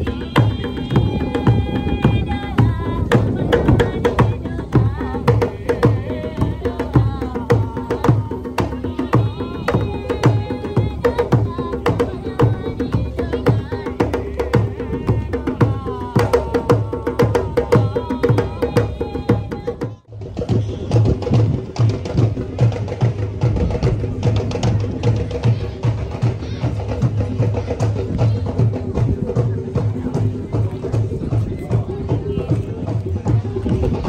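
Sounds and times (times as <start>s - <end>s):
person singing: 0.0s - 20.1s.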